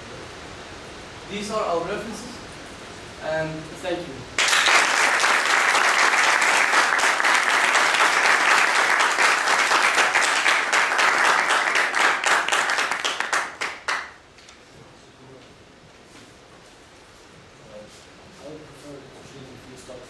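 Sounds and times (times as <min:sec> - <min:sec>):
audience applauding: 0:04.4 - 0:14.2.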